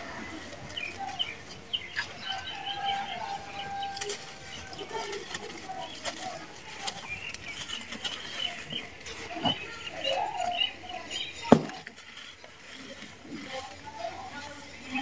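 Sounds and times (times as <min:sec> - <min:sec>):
cement slab crumbling and crunching: 0:11.4 - 0:12.0.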